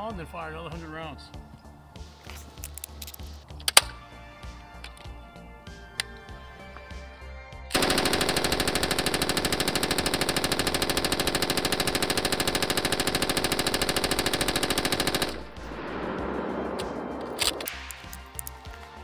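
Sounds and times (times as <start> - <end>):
machine gun firing full-auto: 7.7 - 17.7.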